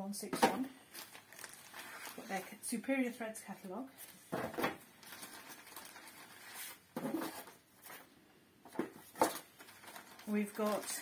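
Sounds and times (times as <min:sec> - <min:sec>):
plastic bags crinkling: 0:00.6 - 0:02.6, 0:04.4 - 0:07.6, 0:09.0 - 0:11.0.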